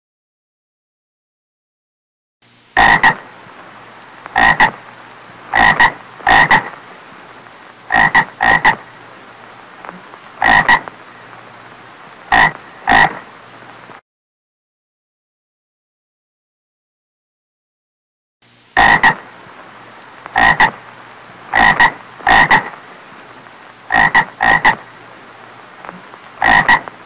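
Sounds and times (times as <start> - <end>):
steady low hum: 2.4 - 14.0, 18.4 - 27.0
frog croaking: 2.8 - 3.3, 4.3 - 4.8, 5.4 - 6.8, 7.9 - 9.0, 9.8 - 11.0, 12.3 - 13.3, 18.8 - 19.3, 20.3 - 20.8, 21.5 - 22.8, 23.8 - 24.9, 25.8 - 27.0.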